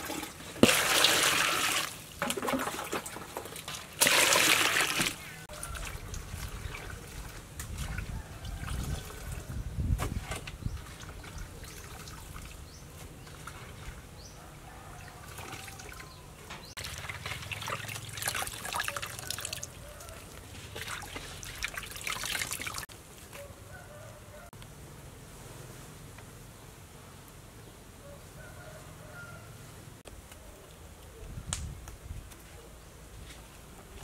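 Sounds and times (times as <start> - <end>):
water splashing in metal basin: 0.0 - 9.4, 15.2 - 16.1, 16.8 - 19.8, 20.7 - 22.9.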